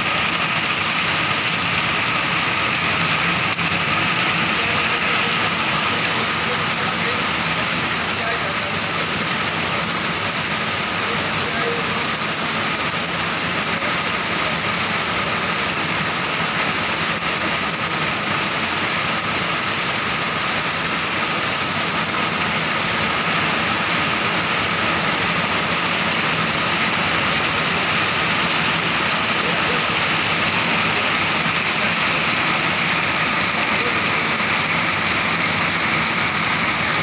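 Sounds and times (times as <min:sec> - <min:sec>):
heavy rain on pavement: 0:00.0 - 0:37.0.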